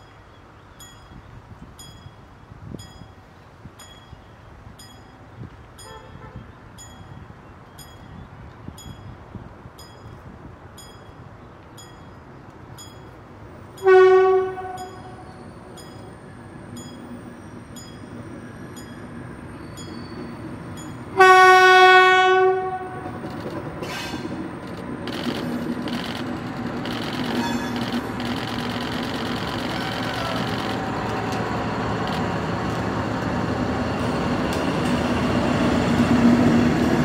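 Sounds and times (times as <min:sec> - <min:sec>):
locomotive horn blasts: 0:05.8 - 0:06.6, 0:13.8 - 0:15.6, 0:21.1 - 0:23.1
diesel engine: 0:23.1 - 0:37.0.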